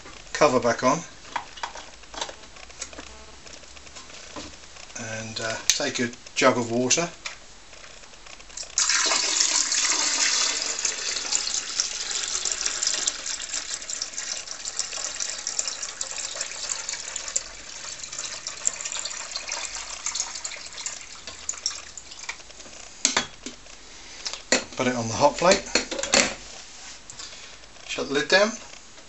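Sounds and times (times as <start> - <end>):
water pouring into reservoir: 8.6 - 22.4.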